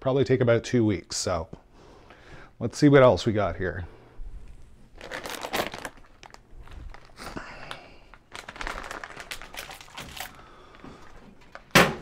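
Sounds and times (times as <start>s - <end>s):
plastic packaging crinkling: 4.8s - 11.8s.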